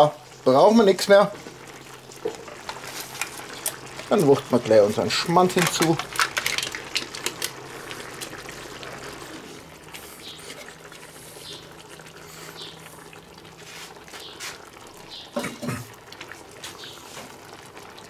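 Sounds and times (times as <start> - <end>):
sauce simmering and bubbling: 0.0 - 18.0
wooden spoon stirring: 2.2 - 14.7.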